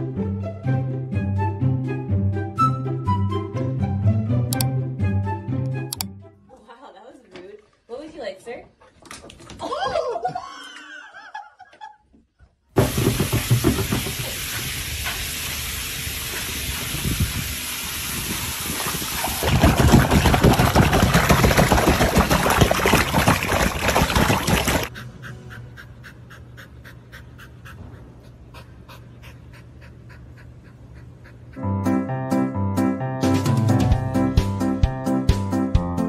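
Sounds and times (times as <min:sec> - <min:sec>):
water splashing and spraying: 0:12.8 - 0:24.9
dog panting: 0:24.9 - 0:31.8.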